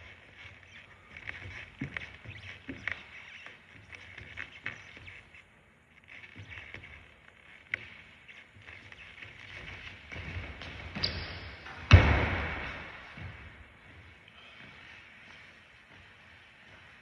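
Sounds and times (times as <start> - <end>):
sneakers running on wooden floor: 0.0 - 5.5, 6.2 - 17.0
loud thud of landing: 11.7 - 13.2.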